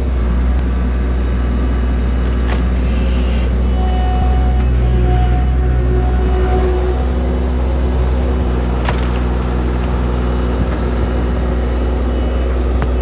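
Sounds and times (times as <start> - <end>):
loader engine running: 0.0 - 13.0
wood cracking: 8.7 - 10.0.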